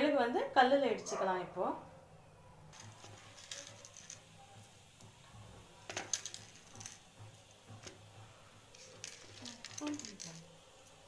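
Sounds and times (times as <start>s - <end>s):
peppercorns rattling into stone mortar: 2.8s - 11.0s.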